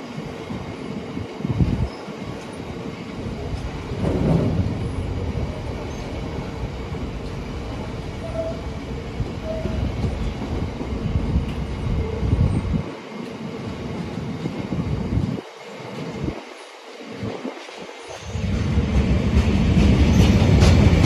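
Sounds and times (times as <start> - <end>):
train wheels rumbling and clattering: 0.0 - 21.0
train wheels squealing: 8.2 - 8.7, 9.4 - 9.9, 18.0 - 18.5, 20.0 - 20.8.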